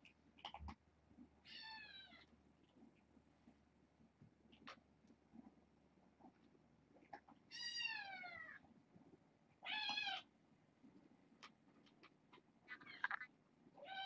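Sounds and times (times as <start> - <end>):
kitten meowing: 9.6 - 10.2.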